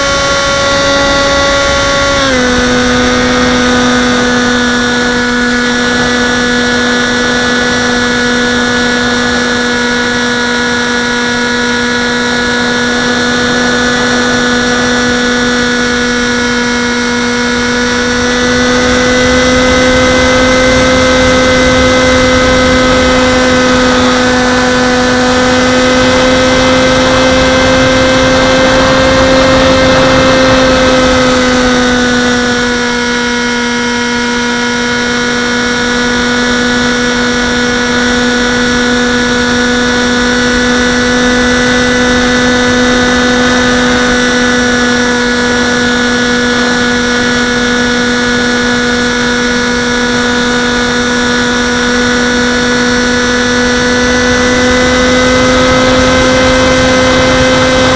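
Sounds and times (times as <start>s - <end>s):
wind rush: 0.0s - 32.8s
electric motor and propeller whine: 0.0s - 57.9s.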